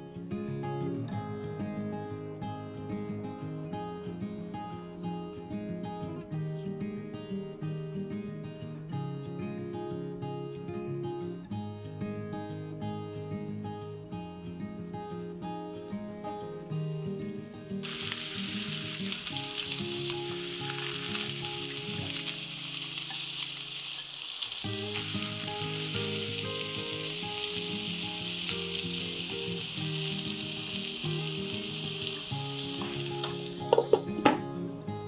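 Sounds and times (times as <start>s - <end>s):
background music: 0.0s - 23.0s, 24.6s - 35.0s
meatballs sizzling in oil: 17.8s - 34.3s.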